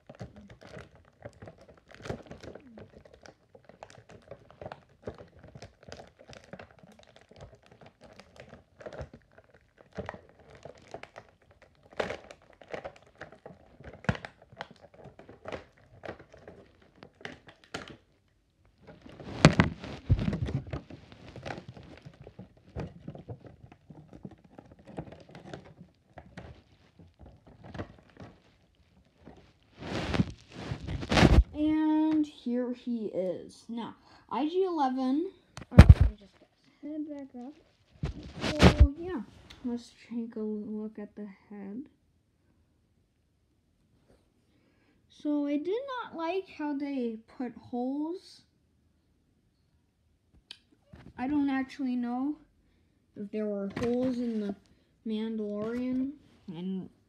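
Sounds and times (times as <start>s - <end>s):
plastic packaging crinkling: 0.0s - 31.8s, 35.6s - 36.4s, 37.0s - 39.7s
rustling: 0.0s - 32.2s, 35.6s - 39.8s, 53.3s - 57.0s.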